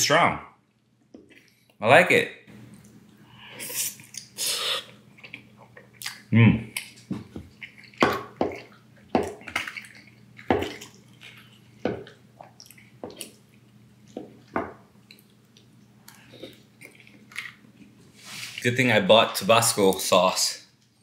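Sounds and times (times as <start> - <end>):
wet mouth eating sounds: 2.7 - 18.0.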